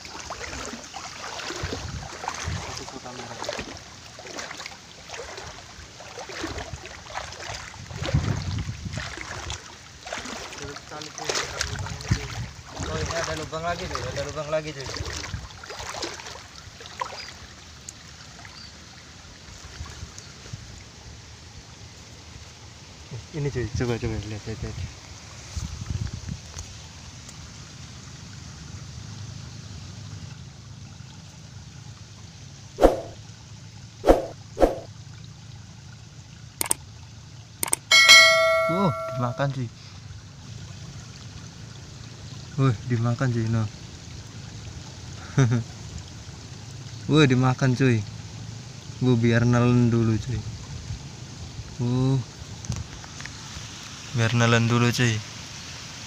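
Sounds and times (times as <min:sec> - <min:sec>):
wading through stream water: 0:00.0 - 0:56.0
sharp plop in water: 0:32.8 - 0:33.2, 0:34.0 - 0:34.9, 0:36.6 - 0:36.8.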